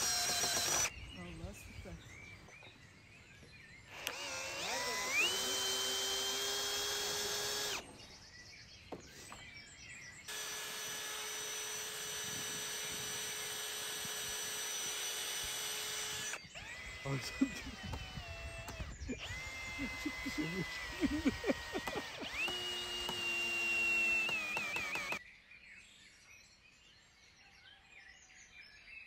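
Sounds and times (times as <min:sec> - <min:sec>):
electric drill whining: 0:00.0 - 0:01.0, 0:03.9 - 0:08.0, 0:10.3 - 0:25.2.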